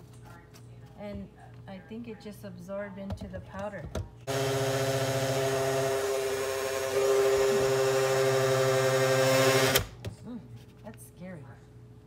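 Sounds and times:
blender motor whining: 4.3s - 9.9s.

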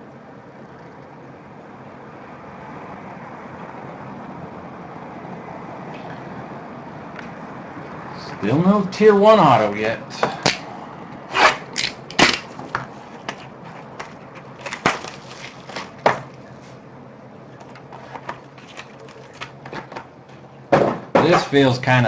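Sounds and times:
cardboard rustling and scraping: 11.3s - 16.8s, 17.6s - 20.1s.

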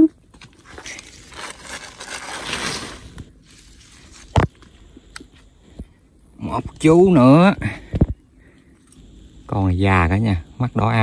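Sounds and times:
dry grass and sheet rustling: 0.4s - 4.8s.

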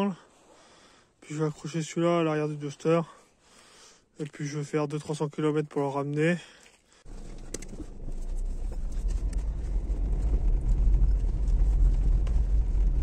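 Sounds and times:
car driving low rumble: 7.1s - 13.0s.

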